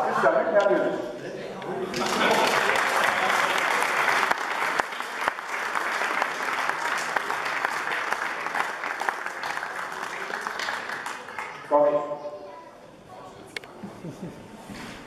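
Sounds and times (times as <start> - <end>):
crowd applause: 1.9 - 11.7.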